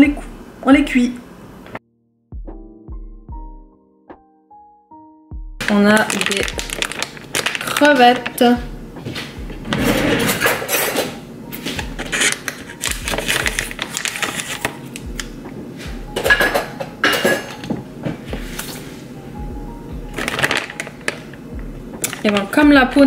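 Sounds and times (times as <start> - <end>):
dishes and utensils clinking: 9.1 - 12.8, 16.2 - 18.8.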